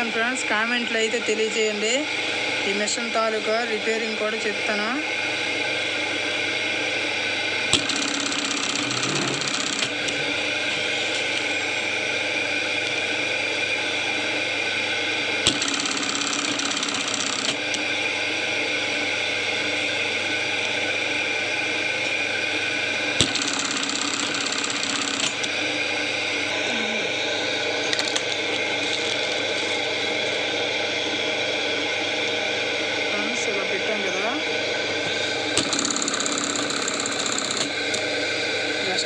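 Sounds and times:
sewing machine motor hum: 7.6s - 27.6s, 35.0s - 39.0s
rapid machine stitching: 7.7s - 11.0s, 15.4s - 17.8s, 23.2s - 25.6s, 35.1s - 38.2s
sewing machine click: 7.8s - 10.0s, 15.5s - 17.6s, 23.2s - 25.5s, 35.6s - 38.0s.

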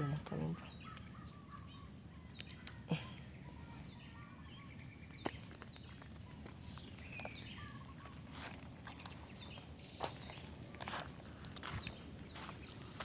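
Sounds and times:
birds chirping: 0.0s - 13.0s
footsteps on gravelly mud: 4.8s - 13.0s.

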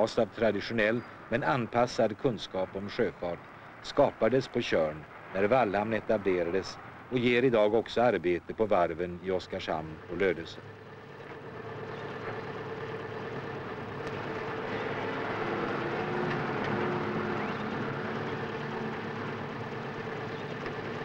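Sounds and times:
vehicle engine running: 8.9s - 21.0s.

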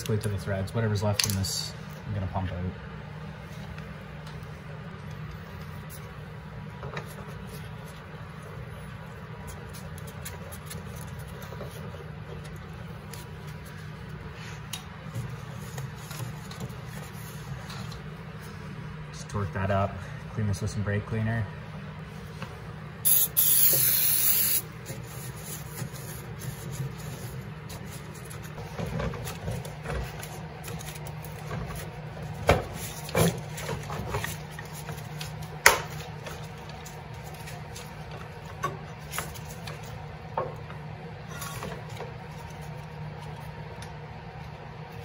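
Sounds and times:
steady low hum: 0.0s - 45.0s
aerosol can spraying: 23.1s - 24.6s.

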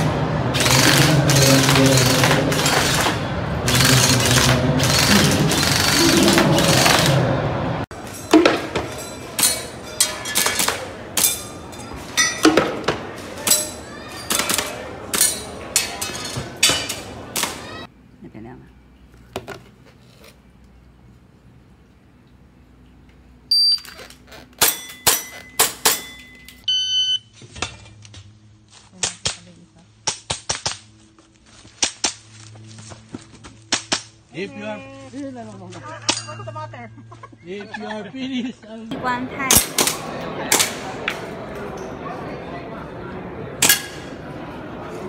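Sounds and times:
loud busy noise with music: 0.0s - 17.9s, 38.9s - 45.0s
shot timer beeps: 23.5s - 23.9s, 25.4s - 27.3s.

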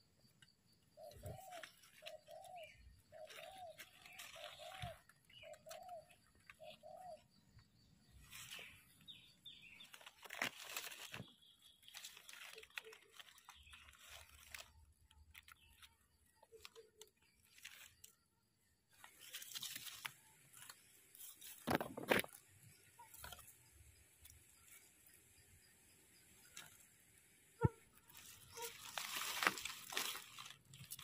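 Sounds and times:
dry leaves crunching and rustling: 1.0s - 6.8s, 8.1s - 18.2s, 18.9s - 22.5s, 28.0s - 31.0s.

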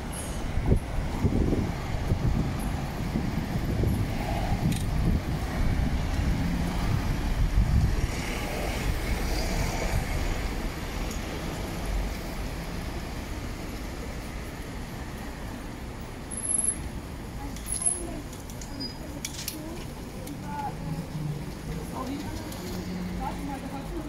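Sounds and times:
traffic hum: 0.0s - 24.0s.

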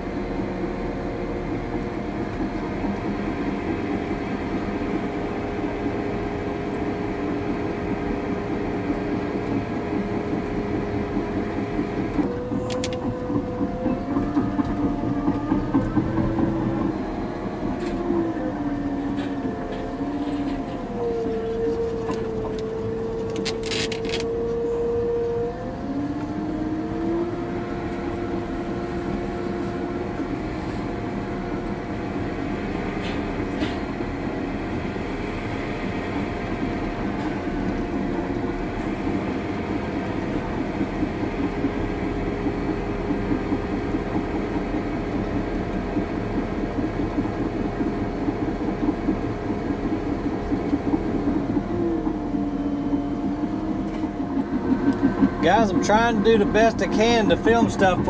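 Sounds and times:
bulldozer engine drone: 0.0s - 58.0s
bulldozer tracks clanking: 0.0s - 58.0s
engine whine: 0.0s - 58.0s.

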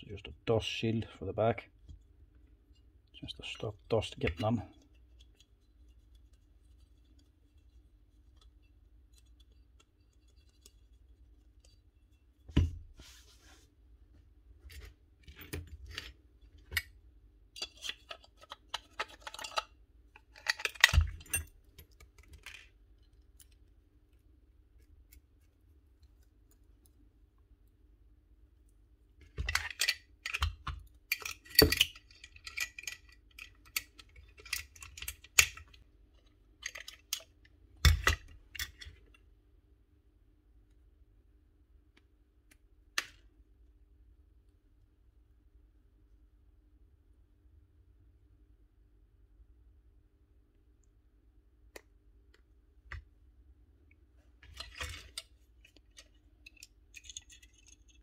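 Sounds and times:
metal and plastic parts clicking: 17.6s - 23.7s, 29.2s - 39.2s, 54.4s - 58.0s.

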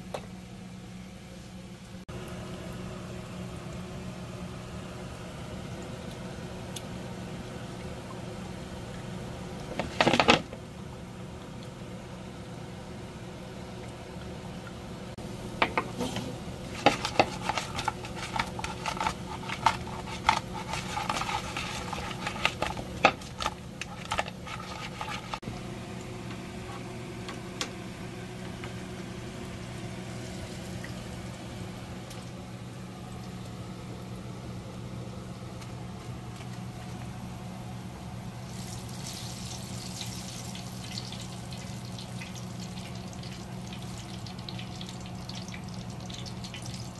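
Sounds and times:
wings slapping in wooden bowl: 16.7s - 25.4s.

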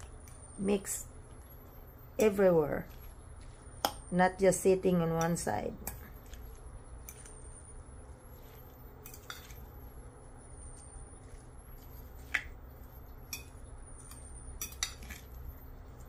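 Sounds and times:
fork tossing salad in bowl: 2.2s - 3.9s, 5.1s - 7.5s, 8.2s - 9.8s, 10.7s - 12.6s, 13.3s - 16.0s.

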